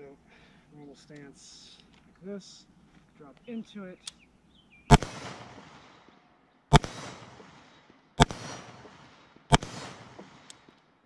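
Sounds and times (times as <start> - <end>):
rifle shots with echo: 4.9 - 11.0.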